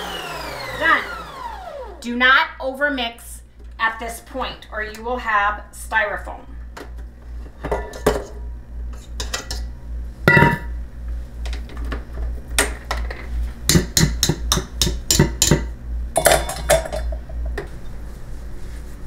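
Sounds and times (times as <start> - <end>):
whisk clanking in metal bowl: 13.7 - 15.6.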